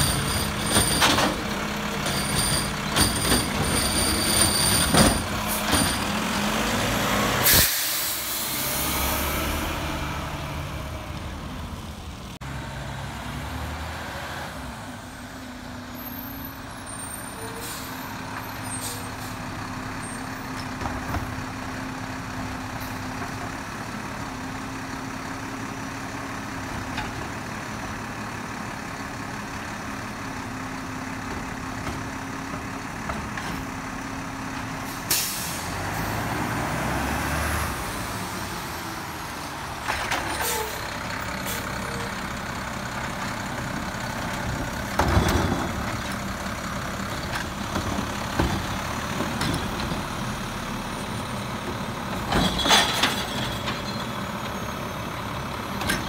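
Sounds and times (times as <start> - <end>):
garbage truck diesel engine: 0.0 - 56.0
air-brake hisses: 7.4 - 8.8.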